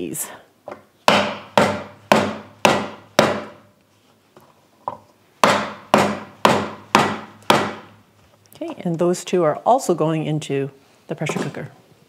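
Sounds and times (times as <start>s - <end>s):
wooden mallet pounding on board: 0.7s - 3.7s, 5.4s - 8.0s.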